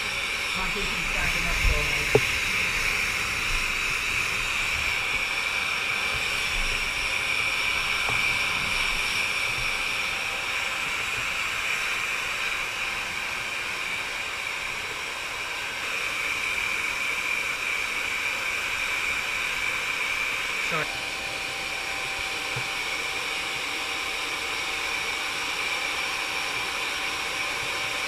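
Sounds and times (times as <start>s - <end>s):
hair dryer blowing: 0.0s - 28.0s.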